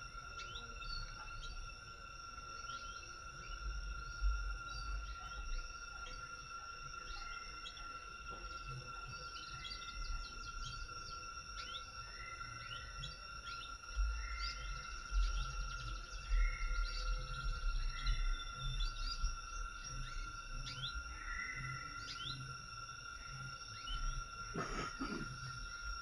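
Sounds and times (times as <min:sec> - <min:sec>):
high-pitched insect drone: 0:00.0 - 0:26.0
birds chirping: 0:06.9 - 0:26.0.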